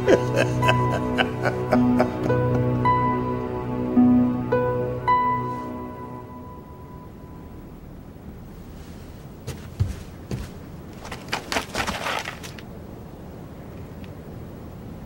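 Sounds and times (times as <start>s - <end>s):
low background rumble: 0.0s - 11.6s
sharp knocks and scuffs: 9.4s - 12.6s.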